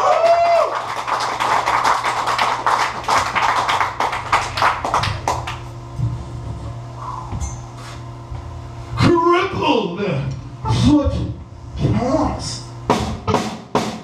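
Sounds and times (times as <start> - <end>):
amplifier hum: 2.2 - 13.5
low drum thumps: 12.8 - 14.0.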